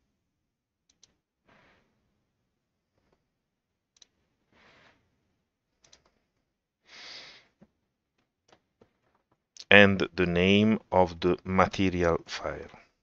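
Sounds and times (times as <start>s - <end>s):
soft breaths: 6.0s - 7.7s.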